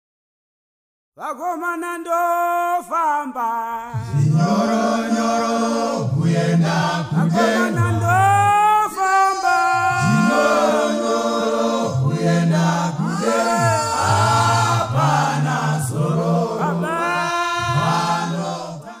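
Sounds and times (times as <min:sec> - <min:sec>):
male choir singing in harmony: 0:03.9 - 0:19.0.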